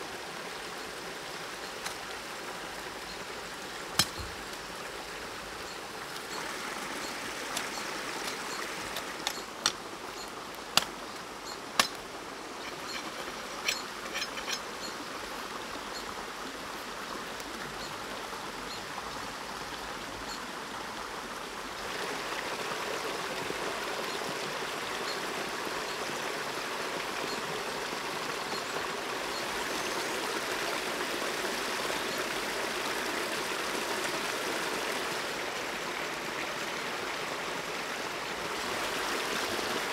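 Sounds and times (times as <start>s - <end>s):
stream running: 0.0s - 39.9s
dry branches snapping: 4.0s - 4.3s.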